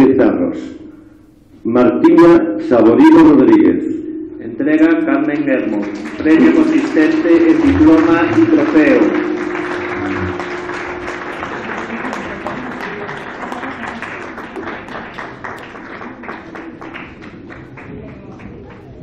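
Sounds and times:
audience applauding: 5.6 - 19.0.

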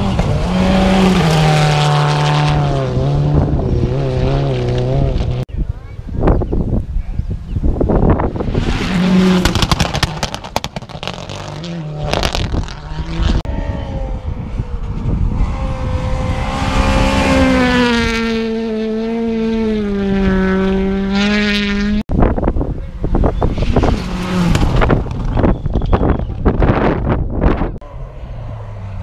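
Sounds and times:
engine held at high revs: 0.0 - 5.5, 8.4 - 22.1
rally car engine revving: 0.0 - 5.5, 8.0 - 22.0, 22.9 - 29.0.

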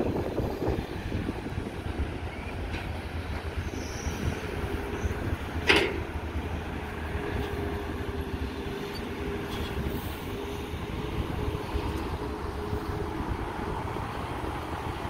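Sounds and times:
excavator diesel engine rumbling: 0.0 - 15.0.

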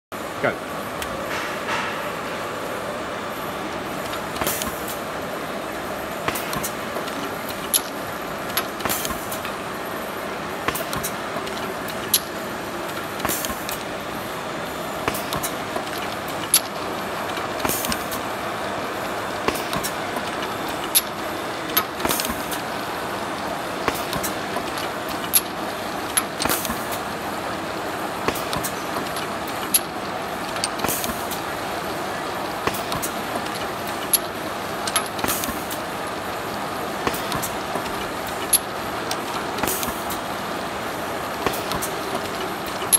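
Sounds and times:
filling machine running: 0.9 - 42.9
sharp machine click: 4.0 - 5.0, 6.2 - 9.6, 10.7 - 13.9, 15.0 - 18.2, 19.4 - 22.7, 23.8 - 27.1, 28.2 - 31.5, 32.6 - 35.8, 37.0 - 40.2, 41.4 - 42.9.

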